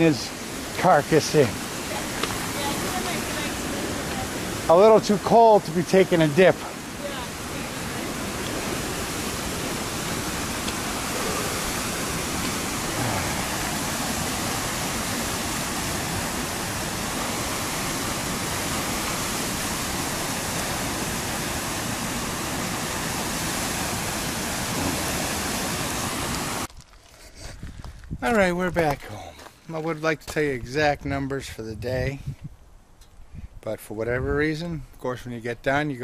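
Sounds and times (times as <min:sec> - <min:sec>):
brook water rushing over rocks: 0:00.0 - 0:26.7.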